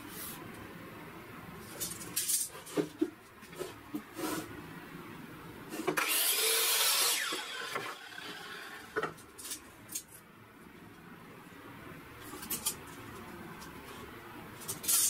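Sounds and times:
miter saw cutting wood: 6.0s - 9.0s.

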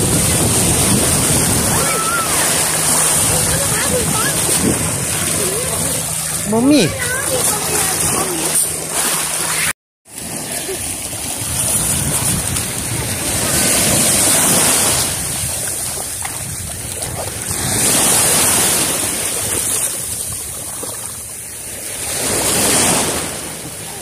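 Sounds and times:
wind buffeting microphone: 0.0s - 9.6s, 10.9s - 20.9s
sea waves washing in: 0.0s - 24.0s.

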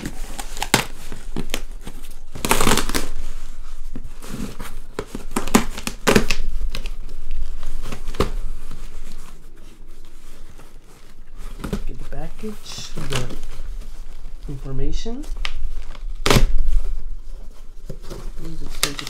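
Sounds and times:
cardboard box being torn open: 2.3s - 3.1s.

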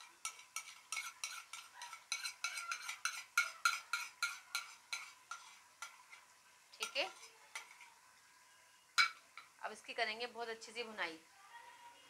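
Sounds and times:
wooden spoon scraping a pot: 0.0s - 7.9s
meat frying: 0.0s - 11.3s.

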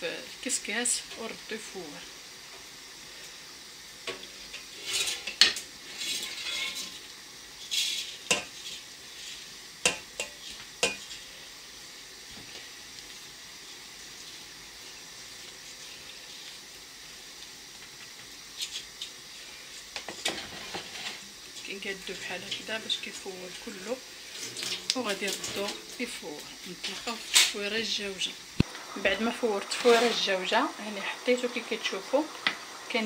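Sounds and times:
clinks against metal pot: 9.8s - 11.0s
couscous grains rustling: 28.9s - 32.3s.

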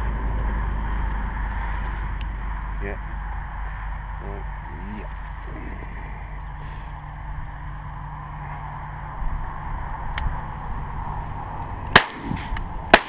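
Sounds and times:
wind noise on microphone: 0.0s - 13.0s
shotgun shots: 11.9s - 13.0s.

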